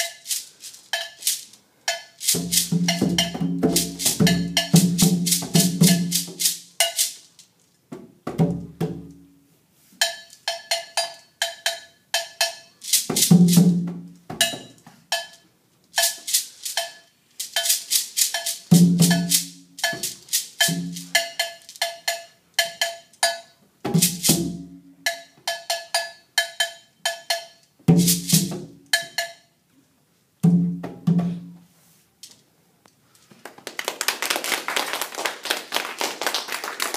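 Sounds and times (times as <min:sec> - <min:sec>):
djembe drum strikes: 0:02.4 - 0:06.4, 0:23.8 - 0:24.7, 0:30.4 - 0:31.5
people clapping: 0:33.3 - 0:36.9.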